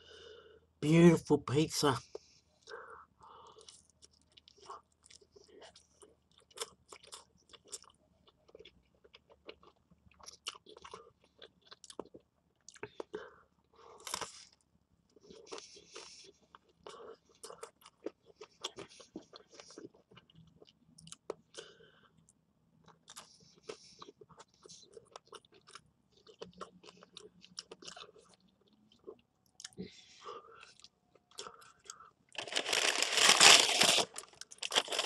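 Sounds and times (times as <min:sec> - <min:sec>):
chewing and crunching: 0:03.4 - 0:35.0
wrapping crinkling: 0:32.4 - 0:35.0.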